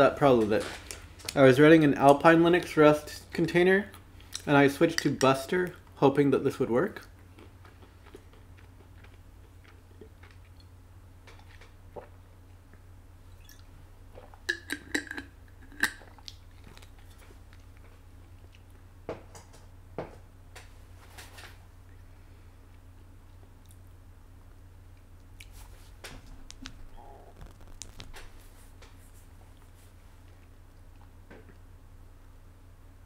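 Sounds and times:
steady low hum: 0.0 - 33.0
person chewing: 7.0 - 12.8, 13.5 - 18.8.

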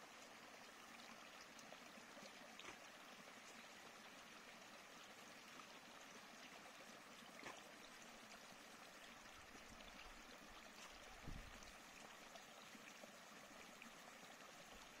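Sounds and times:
soft low bump: 11.2 - 11.7.

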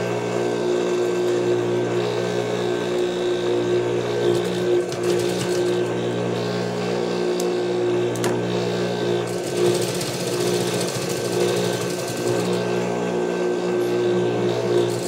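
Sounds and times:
sewing machine motor hum: 0.0 - 15.0
sewing machine stitching: 4.2 - 5.9, 9.2 - 12.7, 14.6 - 15.0.

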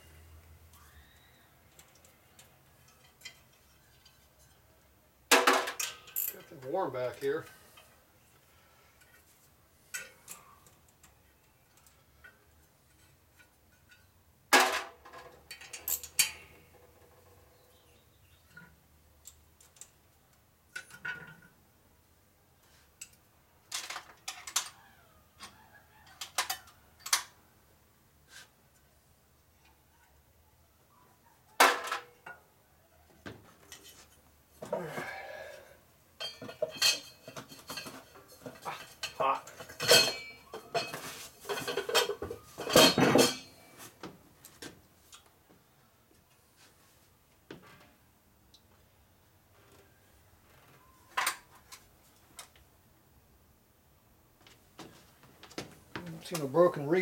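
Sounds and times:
metal clinks and rattles: 1.7 - 4.7, 5.3 - 6.8, 14.7 - 17.4, 36.2 - 43.6
metal tools clanking on metal: 1.8 - 4.7, 5.3 - 7.9, 9.9 - 10.8, 12.2 - 19.9, 36.2 - 43.7
socket wrench clinking: 36.2 - 40.9.

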